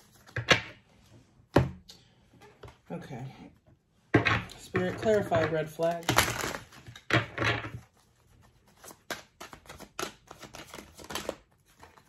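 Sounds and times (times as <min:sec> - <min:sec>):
cards being shuffled: 0:04.8 - 0:12.0.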